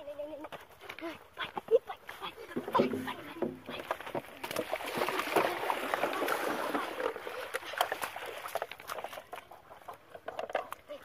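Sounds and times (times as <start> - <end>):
mud squelching: 0.1 - 11.0
water splashing: 2.2 - 11.0.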